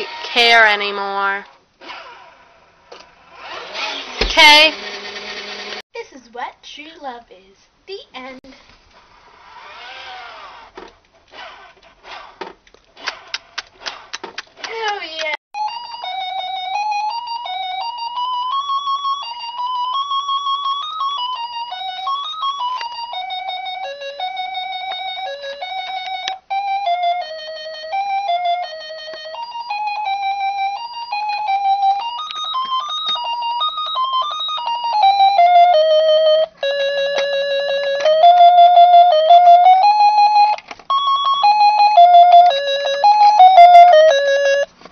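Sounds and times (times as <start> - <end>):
tinny toy electronic melody: 15.6 - 44.7.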